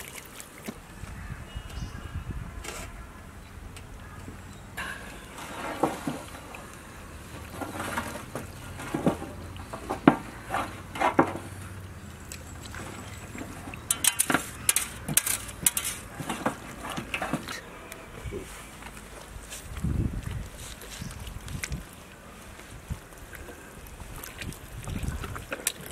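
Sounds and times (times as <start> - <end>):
metal platter knocking and scraping: 13.9 - 17.6.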